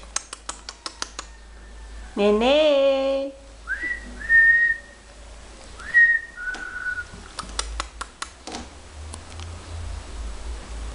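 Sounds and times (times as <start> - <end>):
person whistling two-note calls: 3.7 - 4.9, 5.8 - 7.1.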